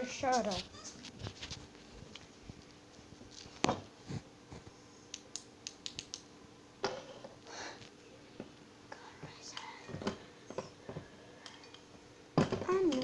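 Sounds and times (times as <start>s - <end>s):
handling clicks and rustles on blanket: 0.2s - 4.8s.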